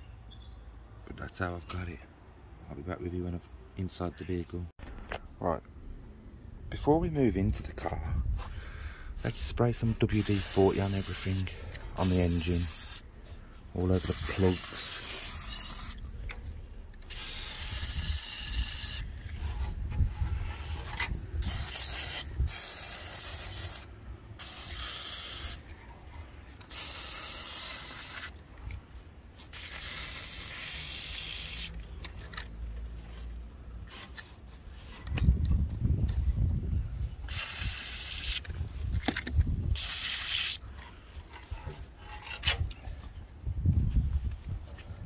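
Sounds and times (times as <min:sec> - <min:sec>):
low rumble: 0:04.8 - 0:10.1
aerosol spray hissing: 0:10.0 - 0:13.1, 0:14.0 - 0:16.0, 0:17.1 - 0:19.1, 0:21.4 - 0:25.6, 0:26.7 - 0:28.3, 0:29.6 - 0:31.7.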